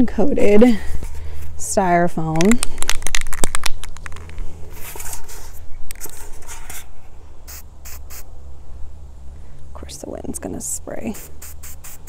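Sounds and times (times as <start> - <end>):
spray paint hissing: 7.5 - 8.3, 11.1 - 12.0.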